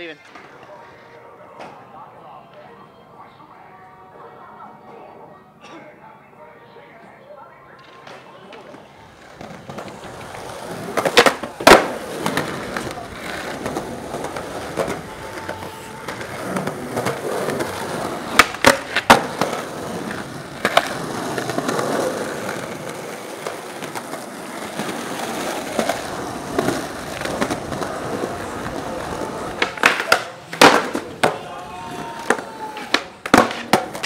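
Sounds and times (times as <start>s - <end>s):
skateboard wheels rolling on pavement: 7.7s - 34.0s
skateboard clacking on ground: 7.8s - 34.0s.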